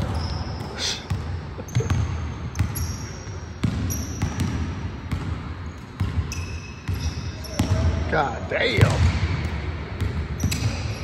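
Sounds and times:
basketballs bouncing on hardwood: 0:00.0 - 0:02.9, 0:03.6 - 0:08.0, 0:08.8 - 0:10.8
sneaker squeaks: 0:00.0 - 0:08.0, 0:08.8 - 0:11.0.

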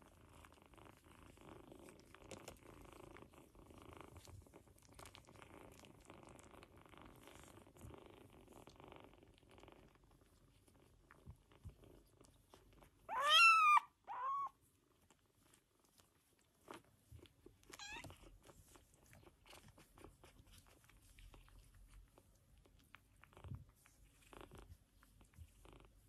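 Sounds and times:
kittens mewing: 0:13.1 - 0:14.5.

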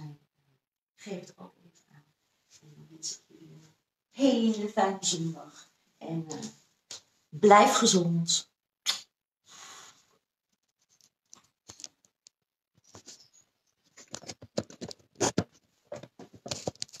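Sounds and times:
blown kiss: 0:08.8 - 0:09.1.

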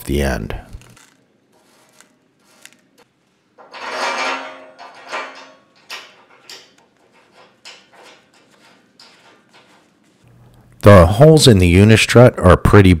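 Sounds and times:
metal channel scraping: 0:00.9 - 0:10.2.

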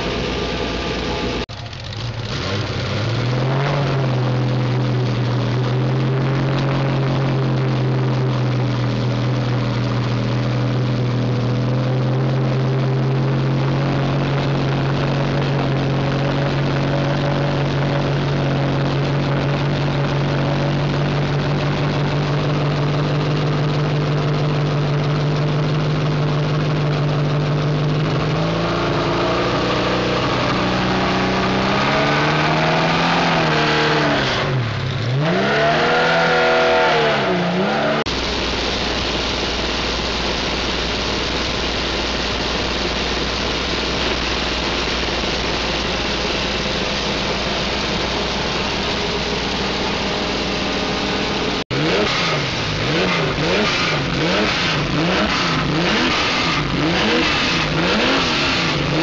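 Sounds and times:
car engine fast idle: 0:00.0 - 0:03.0, 0:38.1 - 0:59.0.

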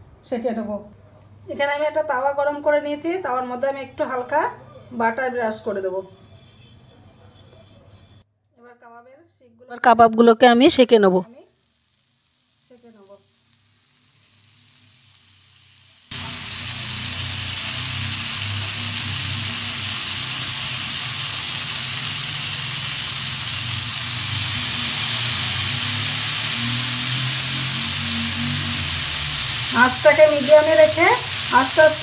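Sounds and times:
chicken sizzling on a hot griddle: 0:11.3 - 0:32.0.

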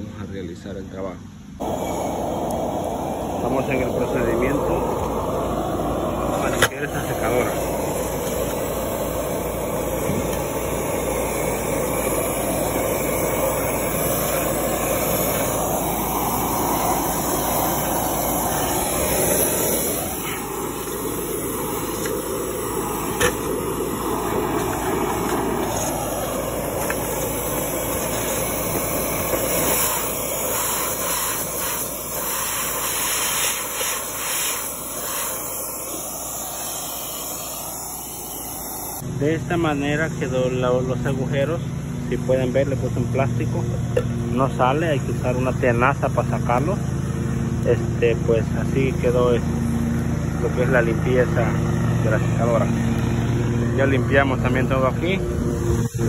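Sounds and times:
air rushing through vent duct: 0:01.6 - 0:56.0.

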